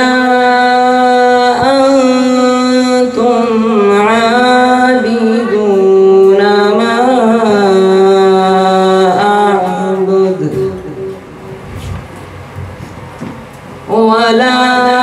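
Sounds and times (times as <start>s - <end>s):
boy reciting melodically: 0.0s - 11.7s, 13.9s - 15.0s.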